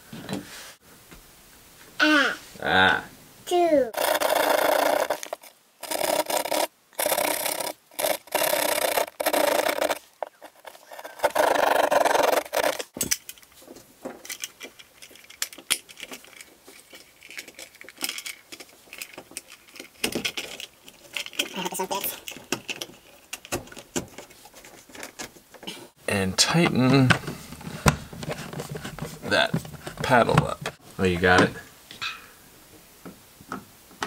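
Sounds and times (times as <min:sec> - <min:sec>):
hand saw cutting drywall: 0:04.0 - 0:12.9
plastic box clicks and rustles: 0:04.0 - 0:21.6, 0:26.5 - 0:30.8.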